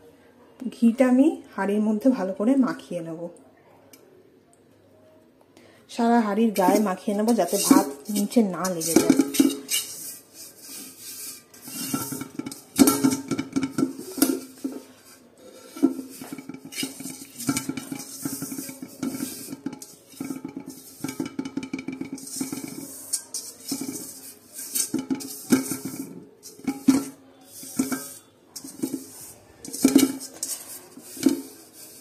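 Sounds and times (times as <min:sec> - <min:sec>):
hand scraping greased metal pot: 0:06.5 - 0:32.0.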